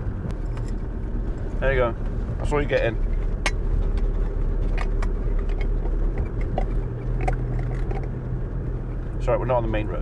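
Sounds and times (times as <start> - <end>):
engine and road drone in car cab: 0.0 - 10.0.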